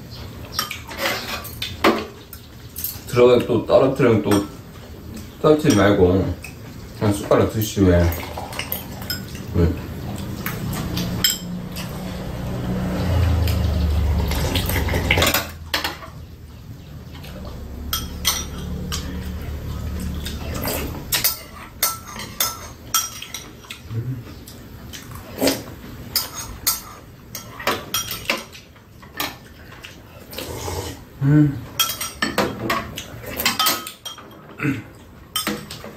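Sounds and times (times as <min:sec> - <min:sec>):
spoons clinking against ceramic bowls: 0:07.6 - 0:09.5, 0:10.4 - 0:12.0, 0:17.9 - 0:23.8, 0:26.1 - 0:28.6, 0:31.8 - 0:34.5, 0:35.3 - 0:35.9.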